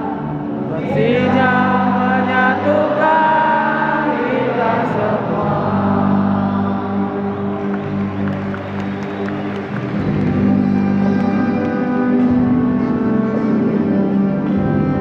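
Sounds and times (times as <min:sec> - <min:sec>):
many voices singing: 0:00.0 - 0:08.6
low accompaniment: 0:00.0 - 0:15.0.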